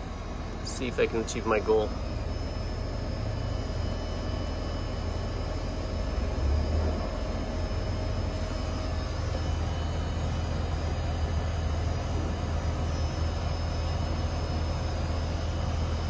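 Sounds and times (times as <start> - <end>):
air conditioner unit humming: 0.0 - 16.0.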